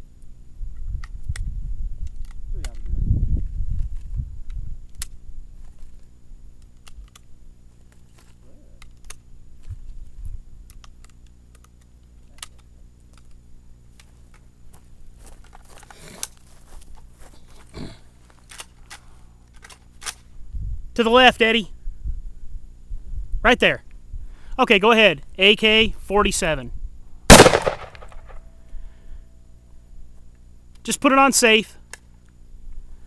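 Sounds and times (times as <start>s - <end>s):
small handling clicks: 0.8s - 3.0s, 3.8s - 10.0s, 10.6s - 14.5s, 18.4s - 20.3s, 31.8s - 32.4s
low steady rumble: 21.6s - 30.8s.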